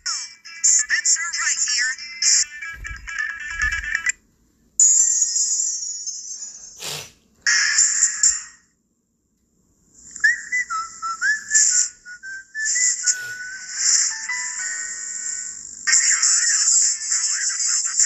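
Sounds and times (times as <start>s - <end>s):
steady high hiss: 9.8s - 18.0s
person whistling a tune: 10.2s - 14.0s.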